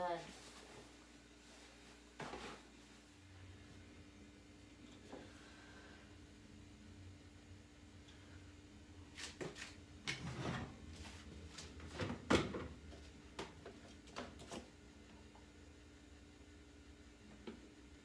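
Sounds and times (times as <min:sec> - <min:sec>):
laundry knocking and clattering: 0:11.6 - 0:14.6.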